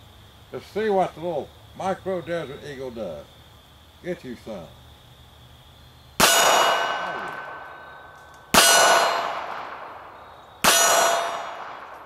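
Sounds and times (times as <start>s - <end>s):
steel target ringing: 6.2s - 10.0s, 10.6s - 12.0s
pistol shots: 6.2s - 12.0s.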